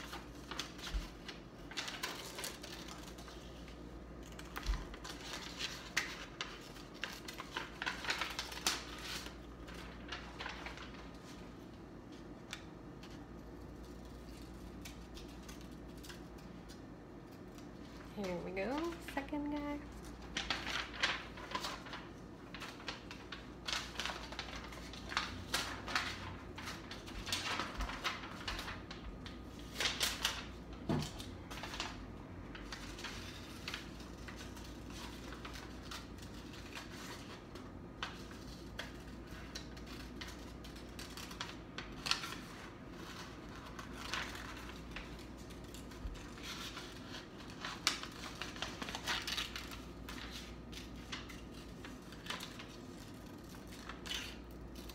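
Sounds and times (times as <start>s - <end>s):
paper rustling: 0.0s - 54.9s.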